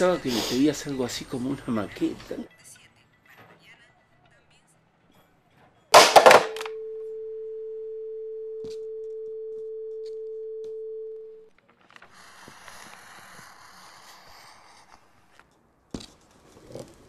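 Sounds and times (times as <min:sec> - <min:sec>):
telephone handset clattering on tiles: 0:06.0 - 0:06.8
telephone dial tone: 0:06.3 - 0:11.5.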